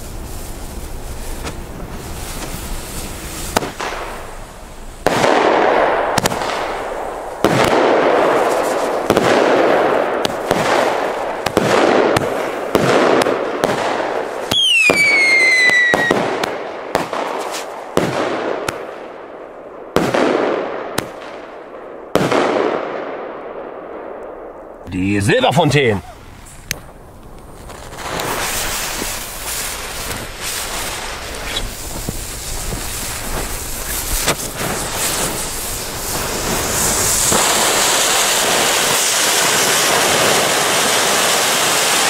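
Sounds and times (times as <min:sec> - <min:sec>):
firework bangs: 0:00.0 - 0:42.0
falling firework whistle: 0:14.5 - 0:16.5, 0:27.6 - 0:42.0.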